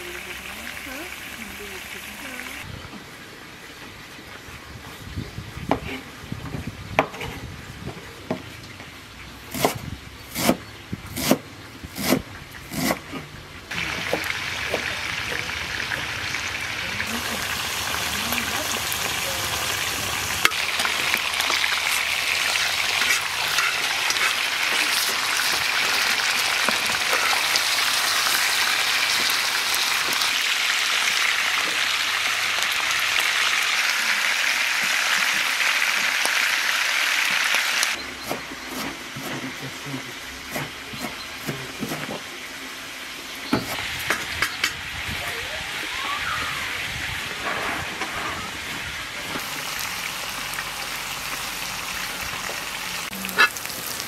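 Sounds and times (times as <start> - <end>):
knife chopping on wooden board: 9.5 - 10.6, 12.0 - 13.1
meat sizzling in hot oil: 13.8 - 38.0, 49.4 - 54.0.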